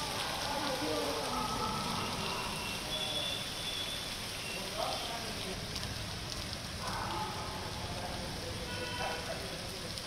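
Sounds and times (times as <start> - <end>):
heavy rain on street: 0.0 - 10.0.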